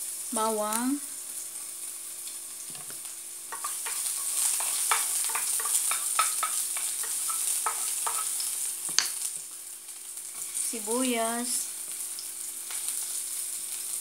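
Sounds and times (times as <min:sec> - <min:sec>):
garlic sizzling in oil: 0:00.0 - 0:14.0
wooden spatula scraping a pan: 0:03.5 - 0:08.5.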